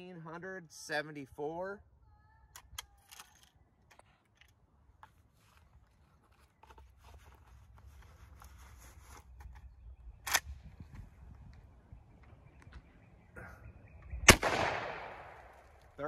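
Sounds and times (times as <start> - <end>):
rifle action clicking and rattling: 2.6 - 4.6
low wind rumble on microphone: 9.5 - 14.4.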